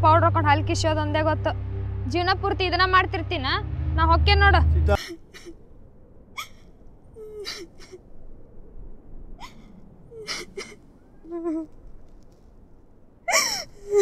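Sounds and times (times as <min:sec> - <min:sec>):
woman sobbing: 0:05.0 - 0:05.6, 0:07.2 - 0:08.0, 0:09.4 - 0:11.7, 0:13.3 - 0:14.0.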